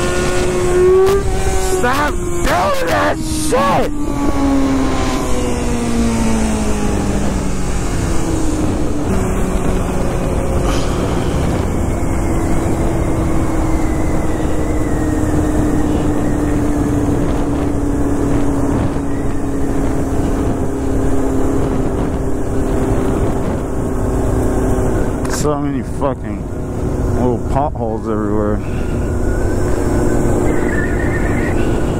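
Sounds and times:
motorcycle engine drone: 0:00.0 - 0:31.9
wind rush over microphone: 0:04.0 - 0:25.4.

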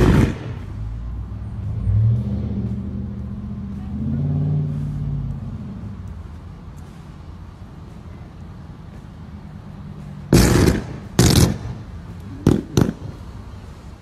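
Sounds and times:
electrical explosive bursts: 0:00.0 - 0:00.6, 0:10.3 - 0:11.8
low steady rumble: 0:00.0 - 0:14.0.

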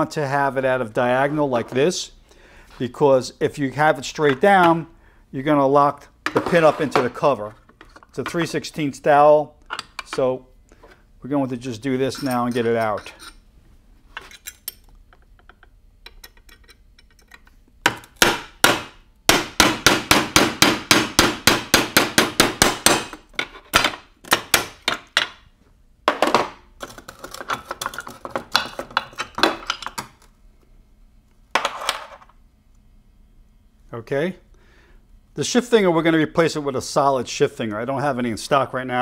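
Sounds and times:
hammer striking pin punch: 0:17.8 - 0:25.4.

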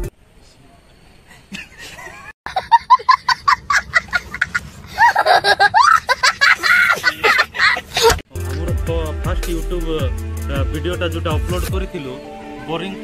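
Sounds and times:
child laughing: 0:01.9 - 0:08.2
hip hop music: 0:08.3 - 0:13.0.

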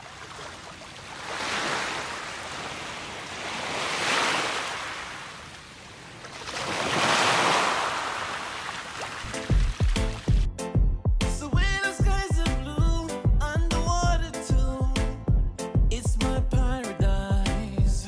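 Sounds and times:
sea waves washing on beach: 0:00.0 - 0:10.3.

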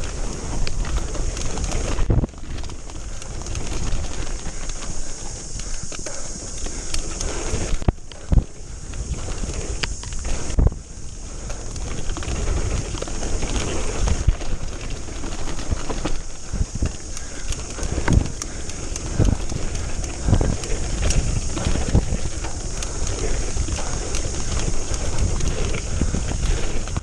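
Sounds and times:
bike clattering over bumps: 0:00.0 - 0:27.0
tyres rumbling over dirt: 0:00.0 - 0:27.0
wind on microphone: 0:00.0 - 0:27.0.

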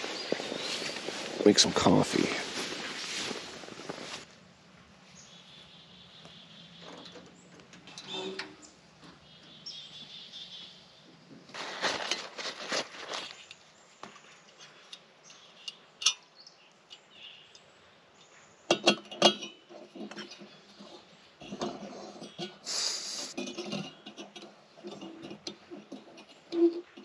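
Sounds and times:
rustling handling noise: 0:00.0 - 0:04.3, 0:11.5 - 0:14.8
camp cookware clinking: 0:14.5 - 0:17.7, 0:18.7 - 0:22.7, 0:23.3 - 0:27.0
brief hiss: 0:22.7 - 0:23.4.

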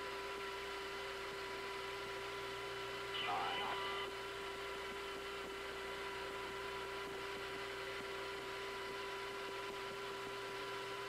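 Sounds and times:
steady electrical hum: 0:03.0 - 0:04.3.

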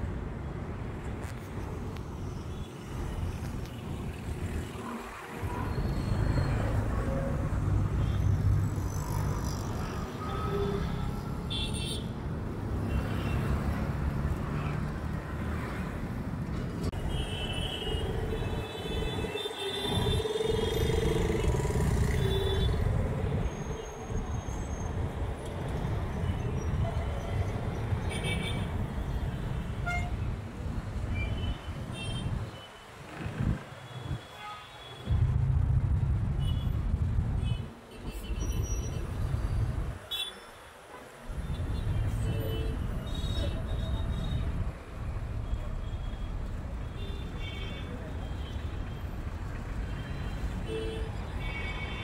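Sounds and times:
road traffic: 0:00.0 - 0:52.0
vehicle horns tooting: 0:29.8 - 0:30.2.

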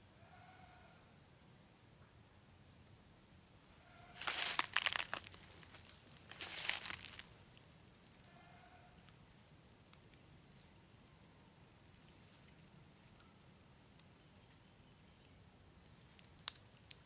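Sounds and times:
leaves and brush rustling: 0:04.0 - 0:08.2.

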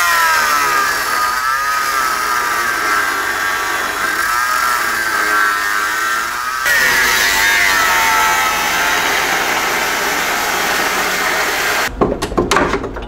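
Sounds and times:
angle grinder cutting steel: 0:00.0 - 0:11.9.

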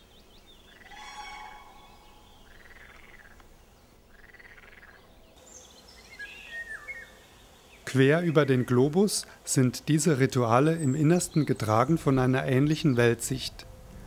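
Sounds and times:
faint bird chirps: 0:00.0 - 0:08.8
frogs croaking: 0:00.6 - 0:05.4.

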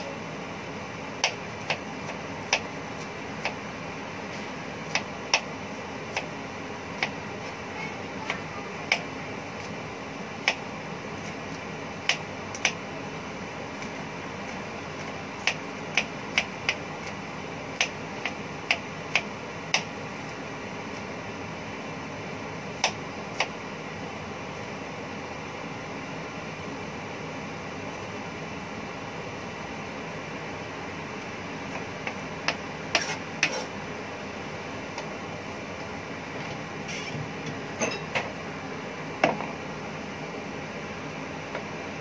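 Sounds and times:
knife chopping on wooden board: 0:01.2 - 0:02.7, 0:04.9 - 0:05.5, 0:13.8 - 0:16.8, 0:31.7 - 0:33.7.

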